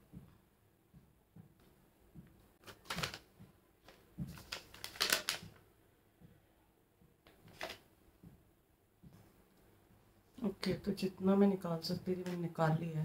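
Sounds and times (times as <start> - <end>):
face mask crackling and rustling: 2.6 - 5.7, 7.3 - 7.9.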